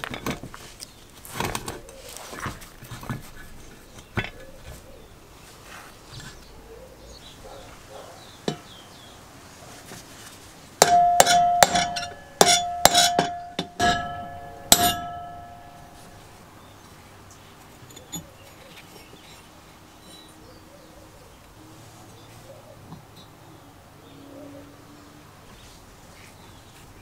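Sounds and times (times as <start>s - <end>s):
metal tool tapping metal housing: 10.8s - 16.0s.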